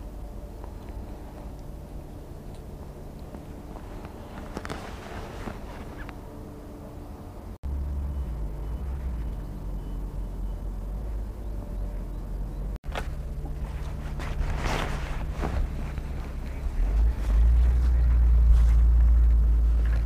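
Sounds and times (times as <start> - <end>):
faint hum: 0.0 - 20.0
low steady rumble: 0.0 - 20.0
rustling and handling noises: 0.2 - 6.6, 12.9 - 20.0.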